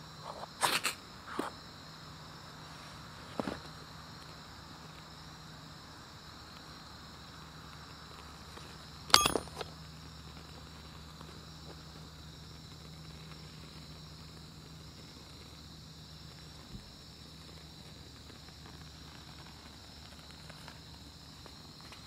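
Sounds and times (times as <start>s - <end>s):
crickets chirring: 0.0s - 22.0s
sharp clack with ring: 9.1s - 9.6s.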